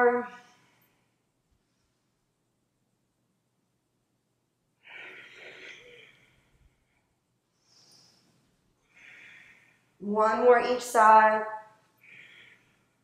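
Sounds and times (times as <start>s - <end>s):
woman exhaling with exertion: 4.8s - 6.6s.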